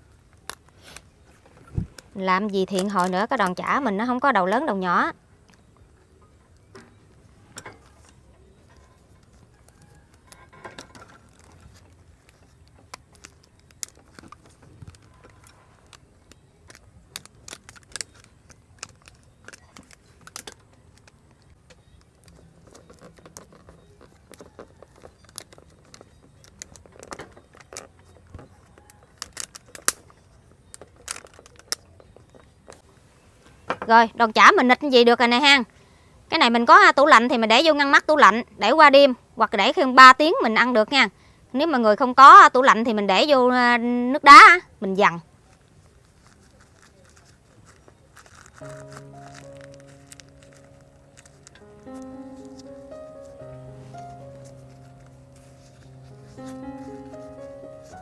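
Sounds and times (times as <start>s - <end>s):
leaves rustling: 45.4s - 58.0s.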